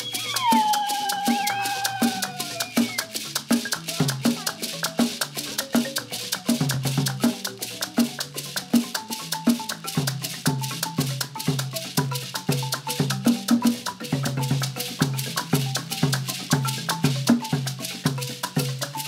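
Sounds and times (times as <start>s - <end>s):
marimba ensemble playing: 0.0s - 19.0s
rattle beats: 0.0s - 19.0s.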